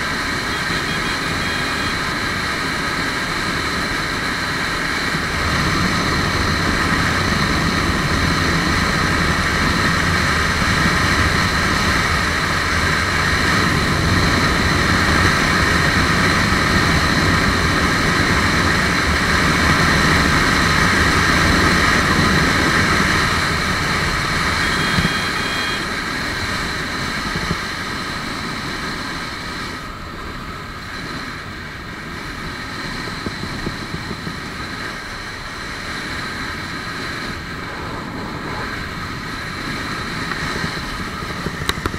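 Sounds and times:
motorcycle engine running hard: 0.0s - 41.9s
wind rushing over camera: 25.9s - 41.9s.

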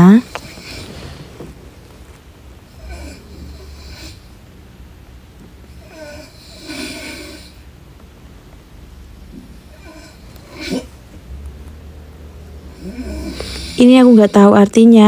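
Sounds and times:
person breathing noisily: 12.7s - 14.3s.

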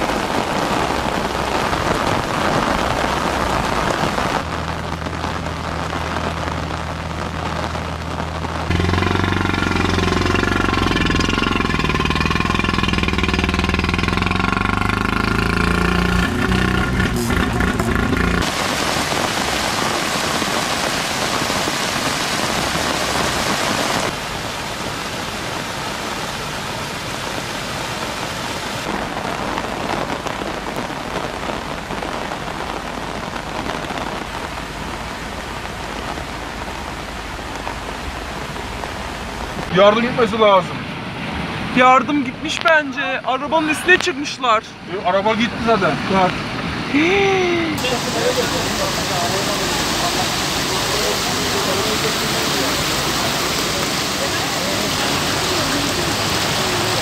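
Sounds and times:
heavy rain: 0.0s - 57.0s
running water: 0.0s - 57.0s
car engine running: 4.5s - 18.6s.

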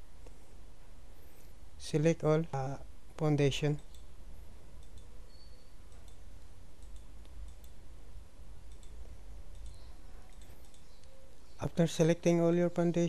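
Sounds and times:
steady low hum: 0.0s - 13.0s
computer mouse clicking: 4.8s - 7.8s, 8.7s - 11.2s.

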